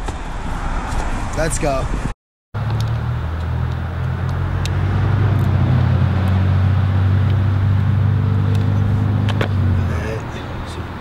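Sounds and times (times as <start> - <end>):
road and air noise: 0.0 - 11.0
vehicle engine droning: 2.6 - 11.0.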